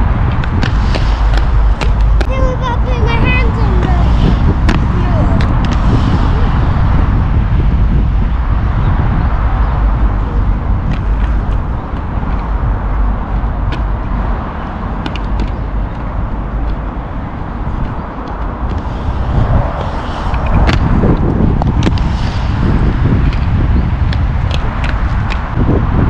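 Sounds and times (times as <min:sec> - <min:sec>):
skate wheels clicking and knocking: 0:00.0 - 0:02.7, 0:13.7 - 0:16.9, 0:23.2 - 0:25.6
low outdoor rumble: 0:00.0 - 0:26.0
skate wheels rumbling on concrete: 0:00.0 - 0:26.0.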